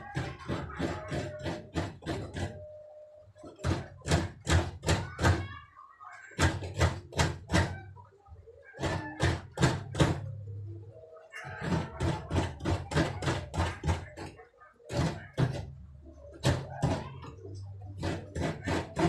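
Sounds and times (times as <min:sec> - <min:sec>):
hard knocks in bursts: 0:00.0 - 0:02.6, 0:03.5 - 0:05.5, 0:06.3 - 0:07.9, 0:08.8 - 0:10.3, 0:11.6 - 0:15.7, 0:16.3 - 0:17.3, 0:18.0 - 0:19.0.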